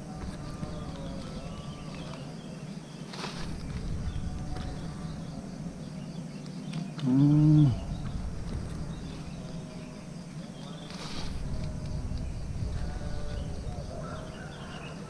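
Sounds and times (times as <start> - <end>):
steady low rumble: 0.0 - 14.4
faint bird calls: 0.0 - 15.0
insect calls: 0.0 - 15.0
person humming: 7.0 - 7.9.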